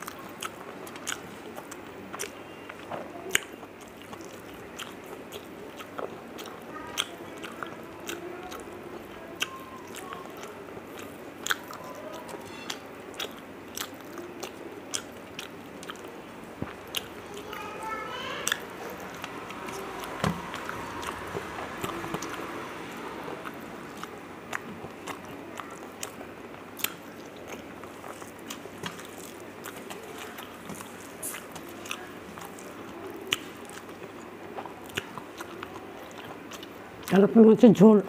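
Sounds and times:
person chewing: 0.0s - 37.2s.

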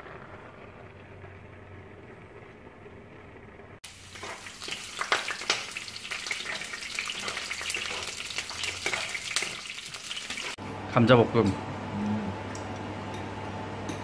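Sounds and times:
garlic sizzling in hot oil: 3.8s - 10.6s.

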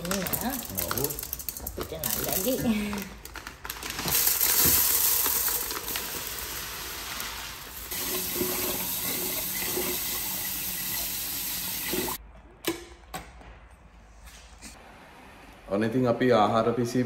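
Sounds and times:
water running from tap: 4.7s - 12.2s.

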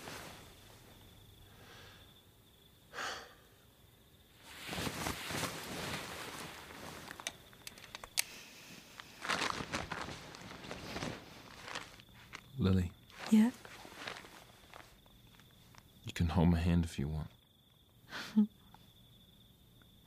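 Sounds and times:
sleeping bag rustling: 0.0s - 1.2s, 4.3s - 15.9s
small clicks: 7.1s - 8.4s.

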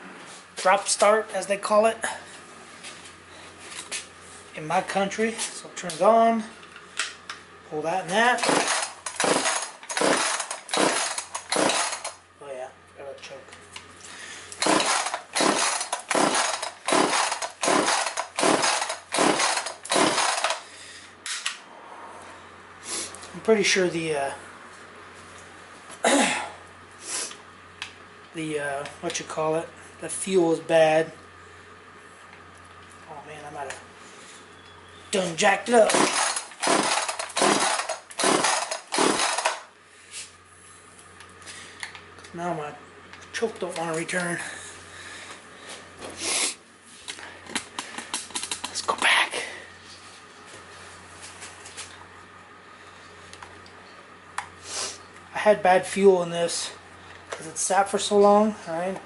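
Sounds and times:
chainsaw recoil starter whirring: 8.1s - 12.2s, 14.5s - 20.8s, 35.6s - 39.7s
engine turning over: 8.2s - 12.2s, 14.5s - 20.7s, 35.7s - 39.7s.

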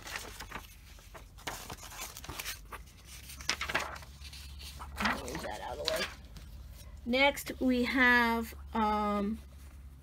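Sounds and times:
paper pages rustling: 0.0s - 7.0s.

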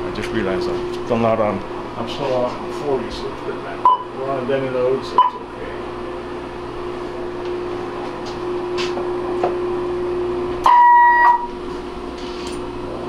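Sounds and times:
valve radio hum: 0.0s - 13.0s
loud high beep: 10.6s - 11.5s.

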